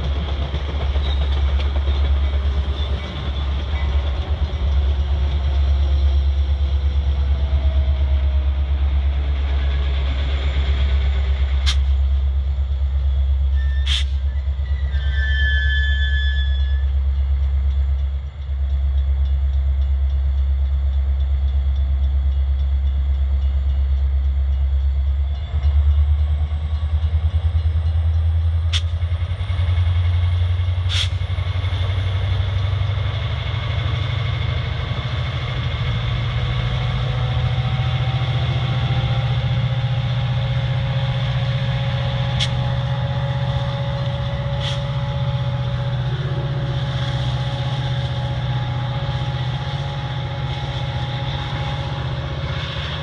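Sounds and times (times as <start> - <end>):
diesel locomotive engine drone: 0.0 - 53.0.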